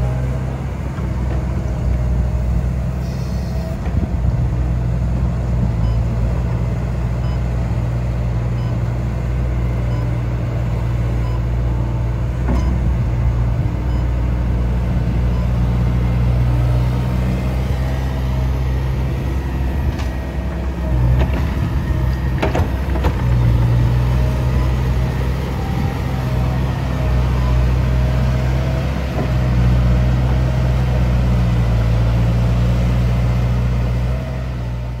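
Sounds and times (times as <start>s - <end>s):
excavator diesel engine running: 0.0s - 35.0s.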